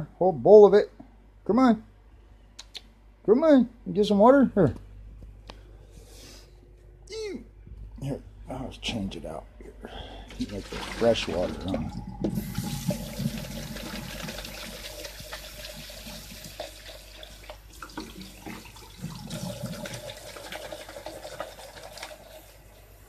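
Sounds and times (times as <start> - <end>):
tap water splashing into bowl: 14.4 - 19.2.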